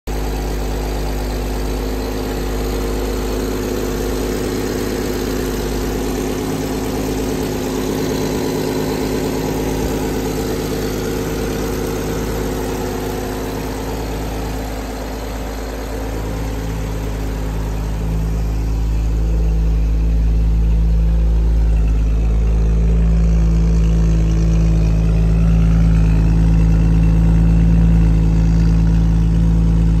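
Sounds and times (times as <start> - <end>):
car engine idling: 0.0 - 30.0
exhaust note: 0.1 - 30.0.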